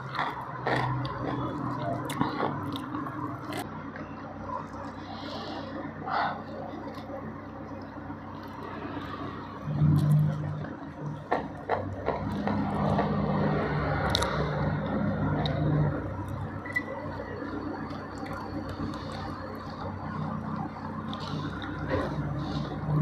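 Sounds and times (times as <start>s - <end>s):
chewing with mouth closed: 0.0s - 3.7s, 6.3s - 23.0s
sharp clicks and scrapes: 14.0s - 15.6s.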